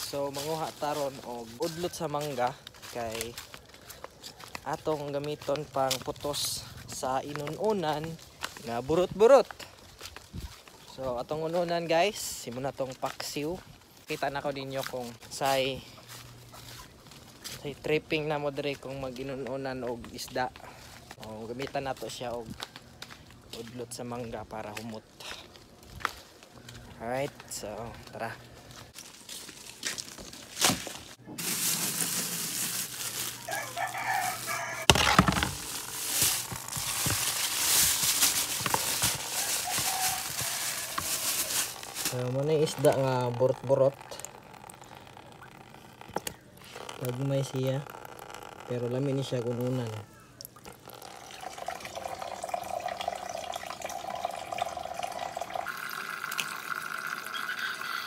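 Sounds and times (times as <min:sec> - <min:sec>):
cloth rubbing fish in metal basin: 0:31.2 - 0:48.6
rooster crowing: 0:33.3 - 0:35.2, 0:39.2 - 0:41.5
water running: 0:47.8 - 0:58.0.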